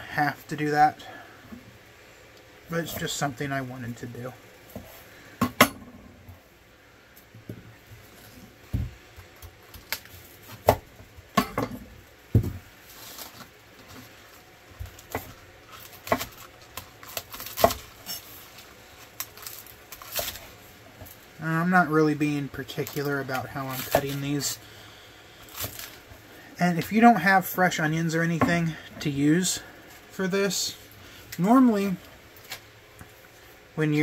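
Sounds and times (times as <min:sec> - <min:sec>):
handling onions: 0:12.8 - 0:24.6.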